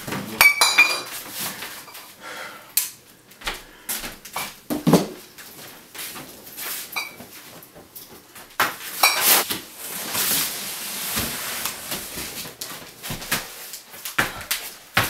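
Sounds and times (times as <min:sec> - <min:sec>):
rustling and scuffing: 0:05.1 - 0:15.0.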